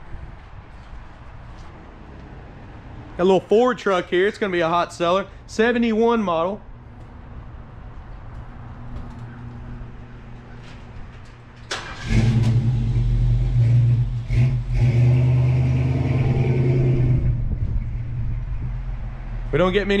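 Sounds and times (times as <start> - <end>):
car engine starting and idling: 11.6 - 20.0.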